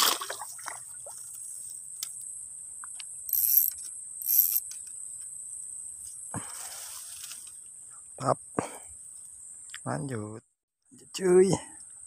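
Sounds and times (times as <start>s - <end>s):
high-pitched insect drone: 2.3s - 7.3s
spinning reel cranking: 3.3s - 4.6s.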